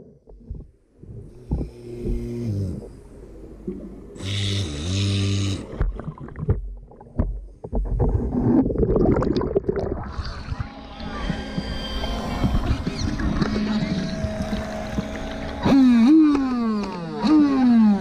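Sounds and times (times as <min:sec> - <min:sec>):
electric motor humming under water: 0:01.2 - 0:06.0, 0:10.0 - 0:18.0.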